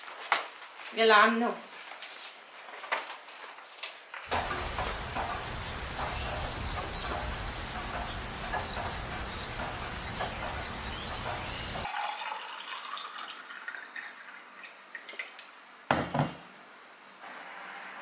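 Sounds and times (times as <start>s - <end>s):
city traffic hum: 4.3s - 11.9s
water pouring into a glass: 11.9s - 15.4s.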